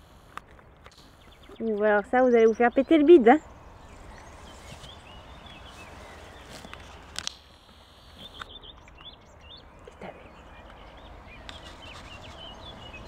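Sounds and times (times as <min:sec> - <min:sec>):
small birds chirping: 0:00.0 - 0:13.0
horse cropping grass: 0:03.8 - 0:07.4
grass tearing clicks: 0:04.1 - 0:09.1.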